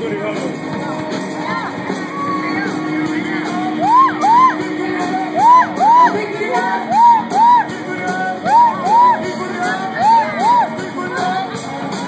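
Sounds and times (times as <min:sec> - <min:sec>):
live band playing loudly: 0:00.0 - 0:12.0
person shouting whoops: 0:03.8 - 0:04.6, 0:05.4 - 0:06.1.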